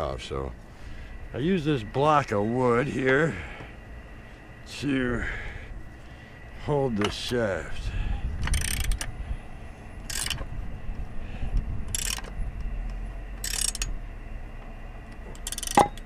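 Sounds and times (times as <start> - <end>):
ratchet wrench clicking: 8.4 - 9.1, 10.0 - 10.4, 11.9 - 12.3, 13.4 - 14.0, 15.3 - 16.0.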